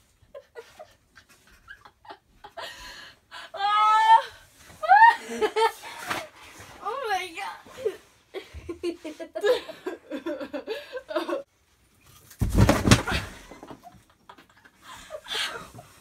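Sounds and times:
girls giggling and laughing: 0:04.8 - 0:06.1, 0:07.8 - 0:11.5.

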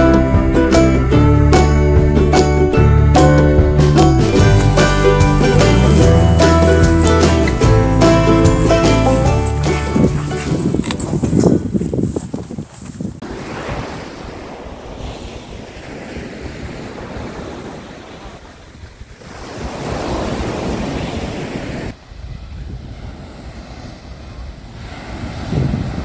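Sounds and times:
wind rumbling on microphone: 0:08.8 - 0:26.0
surf breaking on a beach: 0:13.2 - 0:26.0.

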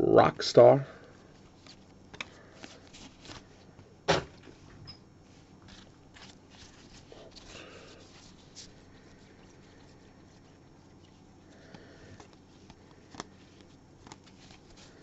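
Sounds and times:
trading cards clicking and rustling: 0:01.4 - 0:03.5, 0:11.6 - 0:15.0.

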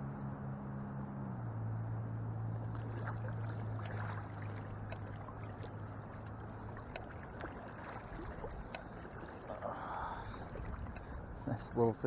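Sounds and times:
low steady hum: 0:00.0 - 0:12.0
water drips and splashes: 0:02.6 - 0:11.2
water lapping around legs: 0:02.6 - 0:12.0.

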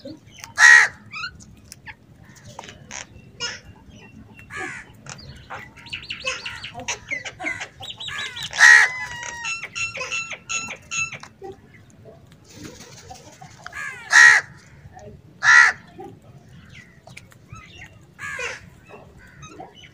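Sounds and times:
crows calling and chattering: 0:00.4 - 0:01.4, 0:02.2 - 0:11.4, 0:13.3 - 0:19.9
loud crow caw: 0:00.6 - 0:01.0, 0:13.8 - 0:14.6, 0:15.4 - 0:15.8.

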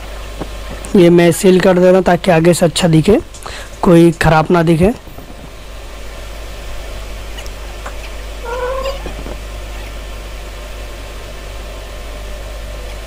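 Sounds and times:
low hum: 0:03.2 - 0:13.0
animal call rising in pitch: 0:08.4 - 0:09.4.

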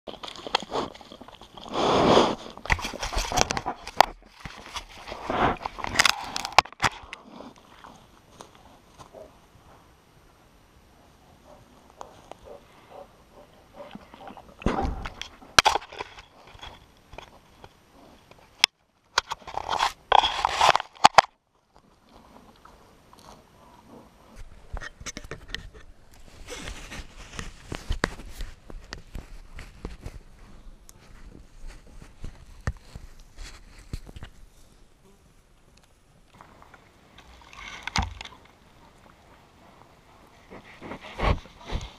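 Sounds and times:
rustling and clicks: 0:00.1 - 0:09.2.

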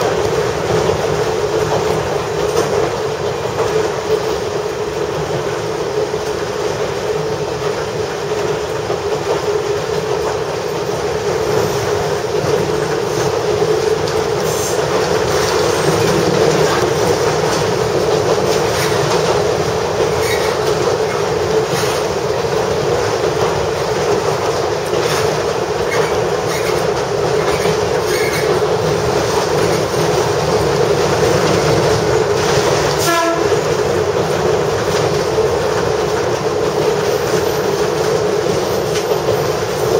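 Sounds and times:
railcar engine and wheel drone: 0:00.0 - 0:39.9
wheels clacking over rail joints: 0:00.0 - 0:39.9
train horn toot: 0:33.0 - 0:33.6.

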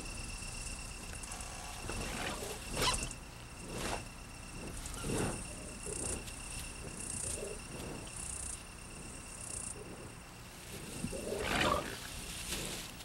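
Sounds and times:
insects trilling: 0:00.0 - 0:13.0
rough rustling or snuffling: 0:09.8 - 0:13.0.

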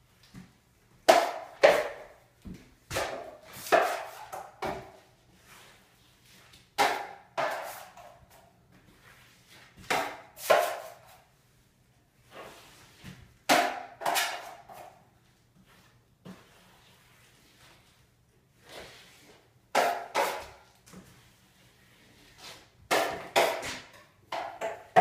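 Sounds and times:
drywall knife scraping wall: 0:02.9 - 0:06.0, 0:06.8 - 0:08.3, 0:09.0 - 0:11.3, 0:12.2 - 0:15.0, 0:18.6 - 0:25.0.

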